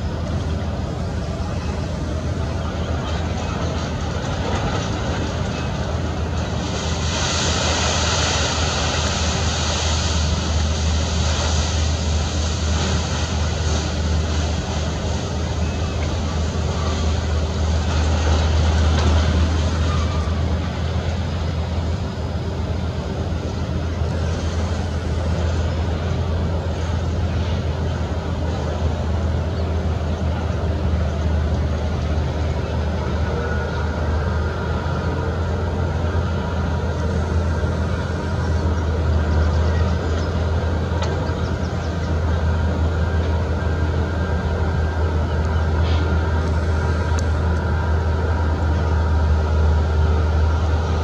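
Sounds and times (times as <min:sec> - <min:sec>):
steady low rumble: 0:00.0 - 0:51.0
even hiss: 0:06.6 - 0:15.2.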